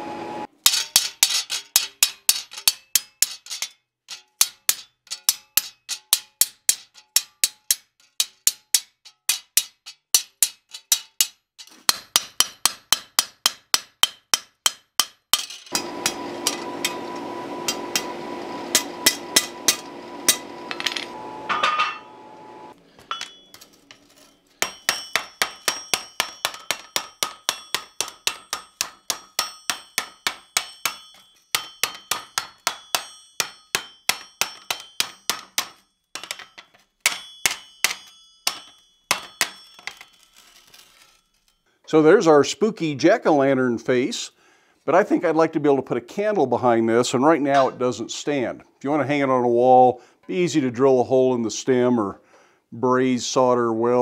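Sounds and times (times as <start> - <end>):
hammer blows on chisel: 15.7 - 23.4
ringing hammer blows on steel: 15.7 - 23.6, 24.6 - 40.2
steady hum: 15.8 - 23.4.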